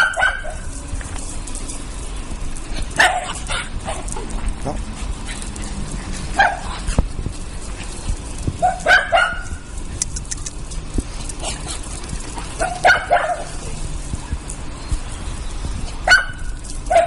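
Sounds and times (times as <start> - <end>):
puppies yapping: 0.0 - 0.8, 2.8 - 17.0
puppy yelp: 16.0 - 17.0.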